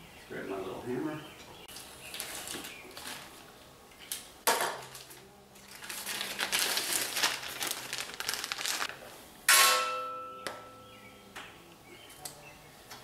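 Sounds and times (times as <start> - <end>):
plastic bag crinkling: 4.9 - 9.0
metal clank ringing: 9.5 - 10.9.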